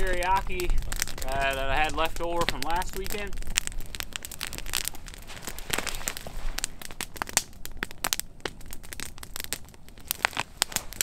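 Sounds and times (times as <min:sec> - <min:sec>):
campfire crackling and popping: 0:00.0 - 0:11.0.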